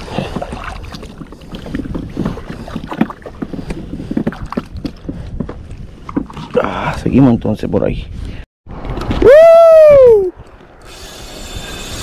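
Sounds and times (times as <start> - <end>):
water slapping against plastic hull: 0.0 - 5.0
wind rumble on microphone: 0.0 - 12.0.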